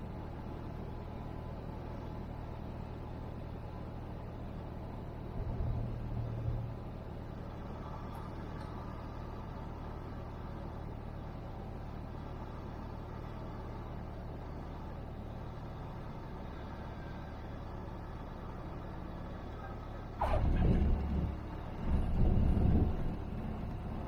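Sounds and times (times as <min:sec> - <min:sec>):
airplane engine and propeller droning: 0:00.0 - 0:24.0
low rumble: 0:18.4 - 0:24.0.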